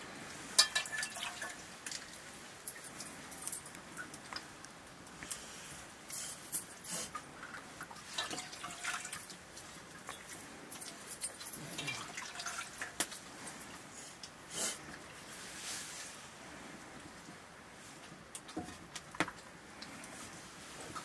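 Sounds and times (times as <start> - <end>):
metal plates clinking: 0.6 - 1.6.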